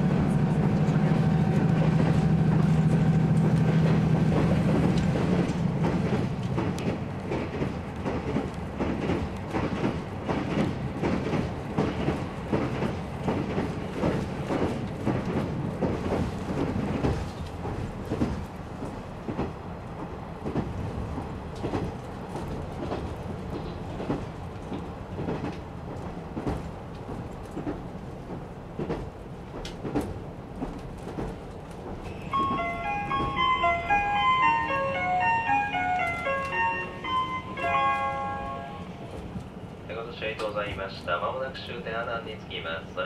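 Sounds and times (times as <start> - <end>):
train engine and running noise: 0.0 - 43.0
chime of bright notes: 32.3 - 38.8.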